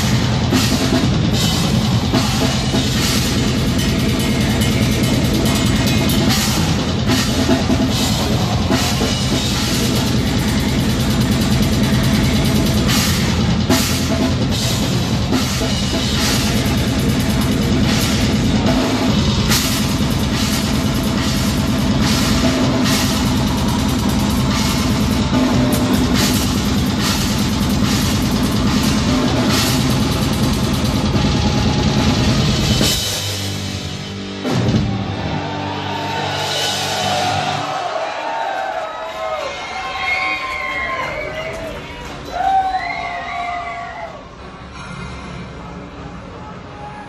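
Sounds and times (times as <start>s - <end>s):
rapid bass drum: 0.0s - 35.2s
cymbal crashes: 0.0s - 35.4s
live metal band playing: 0.0s - 38.1s.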